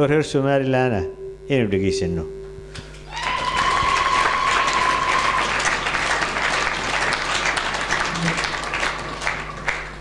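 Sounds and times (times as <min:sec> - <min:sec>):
high-pitched tone: 0:00.8 - 0:02.8
audience applauding: 0:03.1 - 0:10.0.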